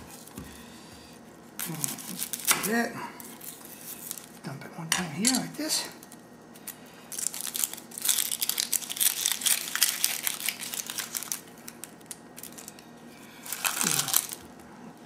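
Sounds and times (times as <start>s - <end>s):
onion skin crinkling and tearing: 1.4s - 4.4s, 6.0s - 14.7s.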